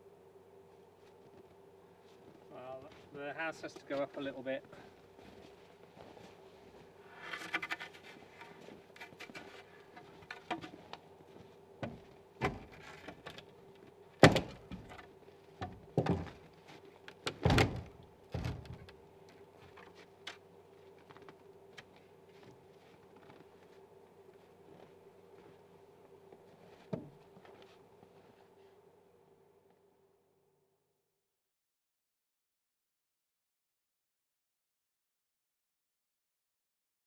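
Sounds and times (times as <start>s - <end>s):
knocks and creaks of wood and iron: 7.0s - 19.0s, 26.7s - 27.7s.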